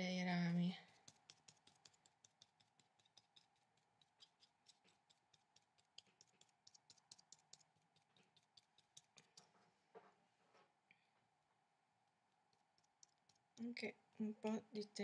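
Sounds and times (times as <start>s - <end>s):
paintbrush tapping on paper: 0.9s - 10.1s.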